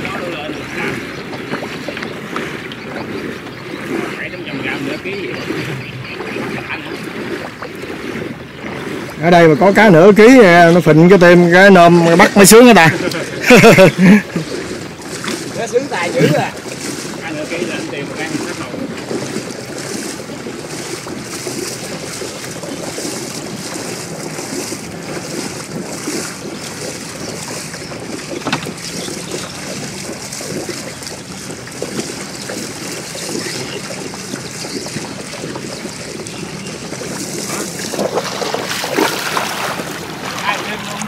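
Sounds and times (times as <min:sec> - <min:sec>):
water sloshing and splashing: 0:00.0 - 0:41.0
wind buffeting microphone: 0:00.0 - 0:41.0.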